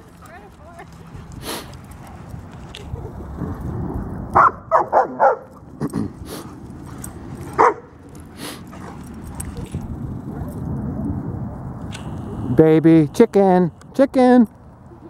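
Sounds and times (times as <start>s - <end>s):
dog barking: 4.4s - 5.6s, 7.5s - 7.9s.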